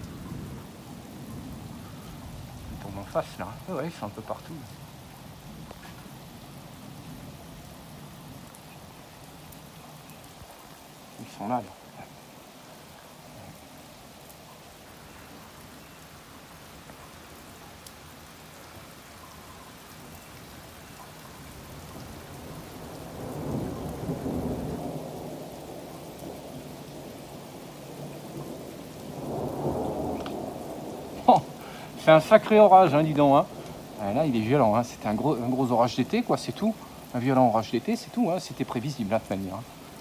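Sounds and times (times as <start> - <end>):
thunder rumbling: 0.0 - 8.5, 21.4 - 40.0
steady rain: 0.0 - 40.0.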